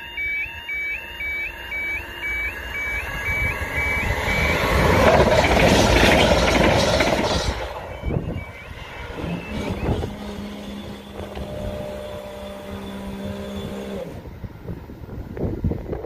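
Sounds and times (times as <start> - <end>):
train rumble: 1.7 - 16.0
hydraulic pump motor humming: 9.1 - 14.3.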